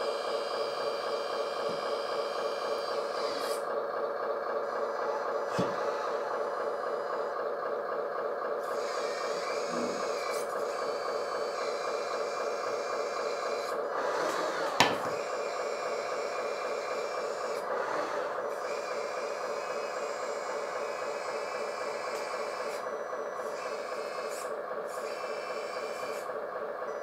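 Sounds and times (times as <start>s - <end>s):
hydraulic pump whining: 0.0s - 27.0s.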